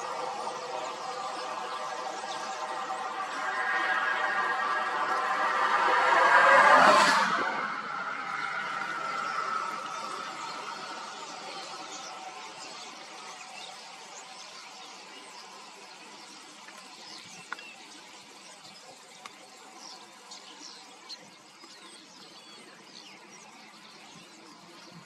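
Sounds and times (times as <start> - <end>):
starlings chattering: 7.9 - 16.5.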